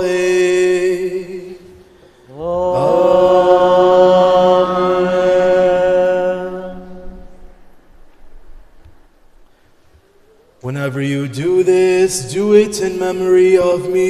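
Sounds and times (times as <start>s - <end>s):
man singing chant: 0.0s - 7.2s, 10.6s - 14.0s.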